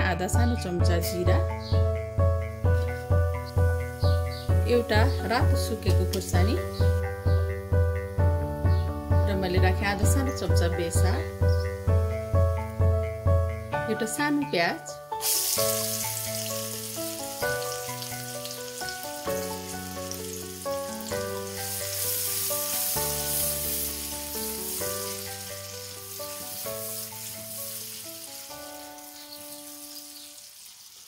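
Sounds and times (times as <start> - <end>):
soft background music: 0.0 - 30.7
onion sizzling in hot oil: 1.0 - 8.3, 15.1 - 31.0.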